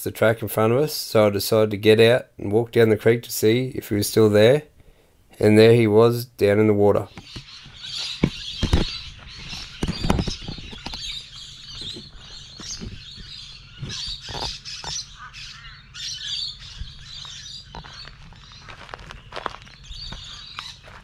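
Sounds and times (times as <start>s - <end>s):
birds chirping and squawking: 6.9s - 21.0s
footsteps on dry leaves: 16.6s - 21.0s.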